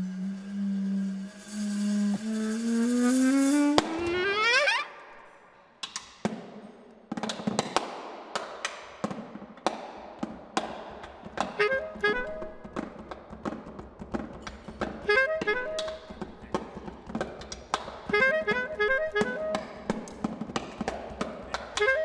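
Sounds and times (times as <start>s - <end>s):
bass clarinet notes: 0.0s - 5.0s, 11.5s - 12.8s, 15.0s - 16.5s, 18.1s - 19.8s, 21.8s - 22.0s
muffled snare drum strokes: 10.2s - 22.0s.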